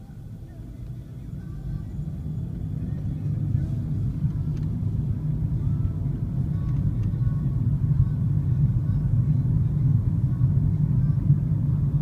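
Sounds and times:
car engine and road rumble: 0:00.0 - 0:12.0.

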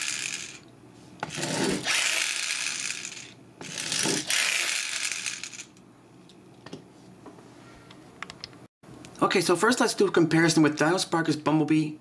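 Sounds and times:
toy pull-back motor whirring: 0:00.0 - 0:00.6, 0:01.3 - 0:05.8.

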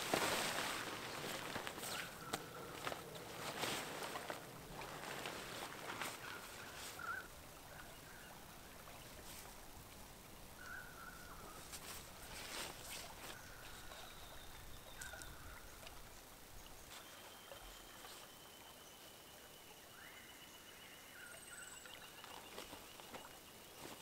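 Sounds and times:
whistled bird calls: 0:06.2 - 0:07.3.

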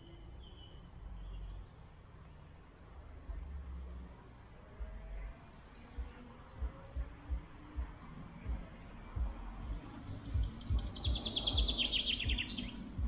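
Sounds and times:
songbird trill: 0:00.0 - 0:02.0, 0:04.2 - 0:13.0
soft low knocks: 0:06.0 - 0:13.0.

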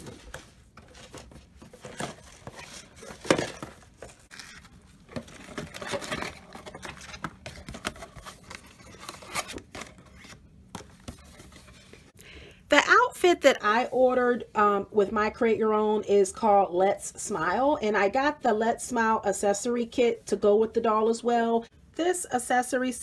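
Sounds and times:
plastic and cardboard rustling: 0:00.0 - 0:12.2.

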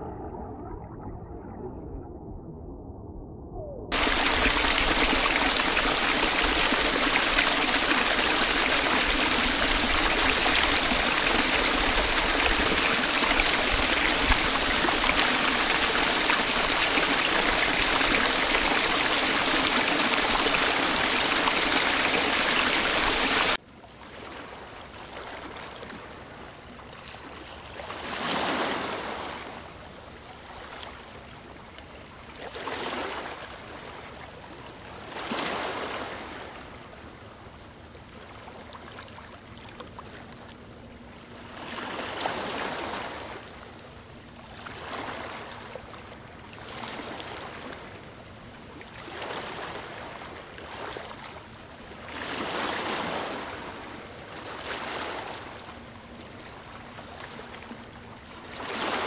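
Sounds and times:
quiet water rushing: 0:00.0 - 0:59.0
waterfall pouring: 0:03.9 - 0:23.6.

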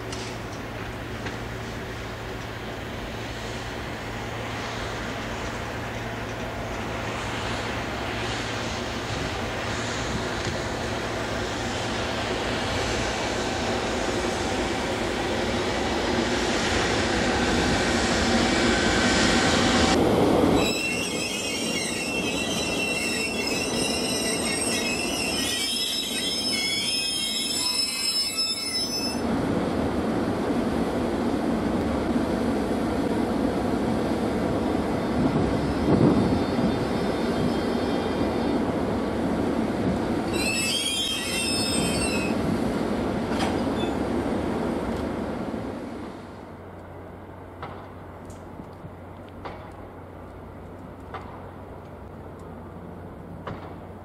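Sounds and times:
electric locomotive rumble and hum: 0:00.0 - 0:54.0
wheels squealing on track: 0:20.6 - 0:29.2, 0:40.3 - 0:42.4.

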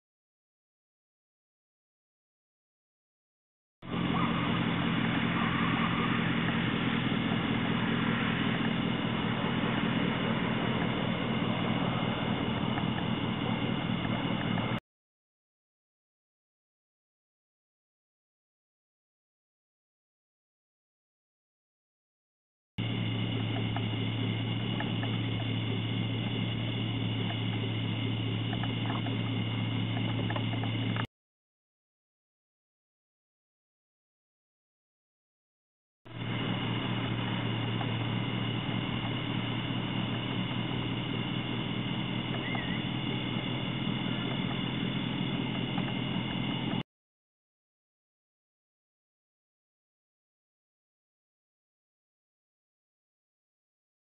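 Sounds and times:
vehicle engine droning: 0:03.8 - 0:14.8, 0:22.8 - 0:31.1, 0:36.1 - 0:46.8.

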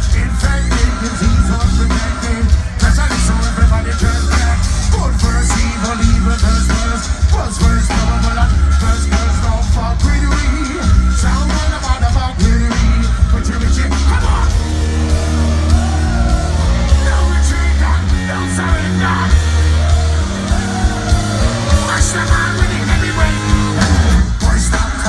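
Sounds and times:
heavy rock band playing live: 0:00.0 - 0:25.0
person singing and shouting: 0:00.0 - 0:25.0.

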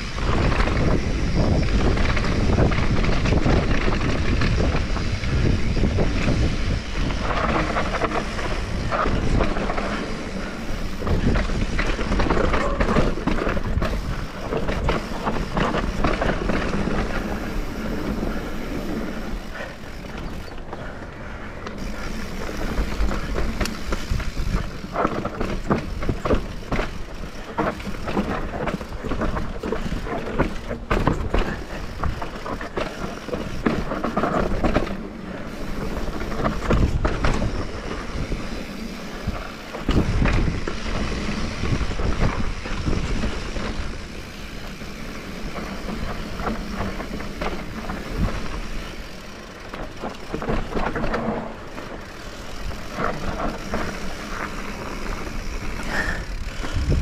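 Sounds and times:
bike rattling and knocking: 0:00.0 - 0:57.0
tyres on dirt and rock: 0:00.0 - 0:57.0.

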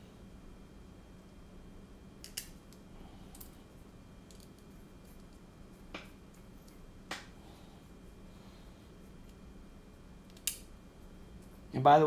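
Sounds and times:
faint steady hum: 0:00.0 - 0:12.0
small parts clicking and tapping: 0:02.2 - 0:03.6, 0:04.2 - 0:07.2, 0:10.2 - 0:10.7.

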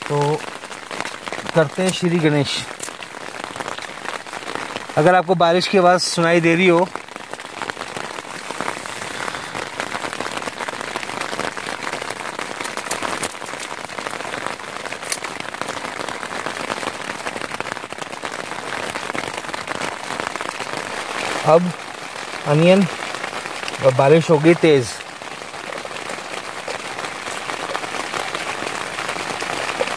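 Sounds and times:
heavy rain on tent: 0:00.0 - 0:29.9.

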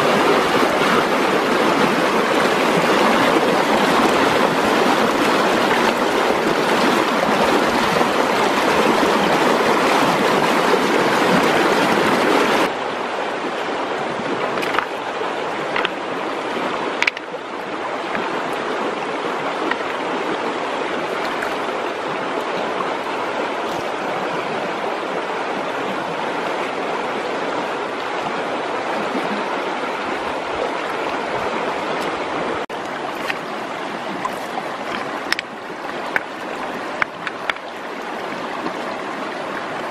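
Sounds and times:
river water rushing over rapids: 0:00.0 - 0:39.9
stream flowing over stones: 0:00.0 - 0:39.9
knocks and splashes in water: 0:14.0 - 0:17.4, 0:18.0 - 0:22.7, 0:28.8 - 0:39.9.

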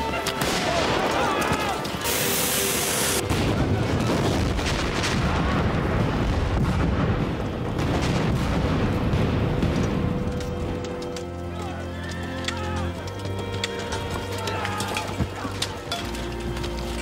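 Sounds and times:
hiss: 0:02.0 - 0:03.2
bridge explosion: 0:02.1 - 0:10.8
gunshots: 0:03.2 - 0:10.4.

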